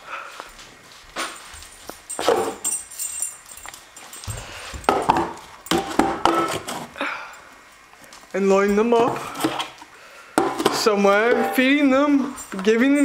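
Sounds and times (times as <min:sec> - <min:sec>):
metal dog bowls clinking: 0:01.2 - 0:06.7.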